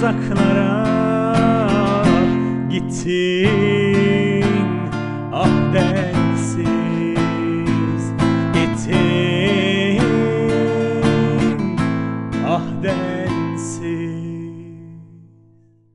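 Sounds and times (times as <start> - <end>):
acoustic guitar strumming: 0.0 - 15.9.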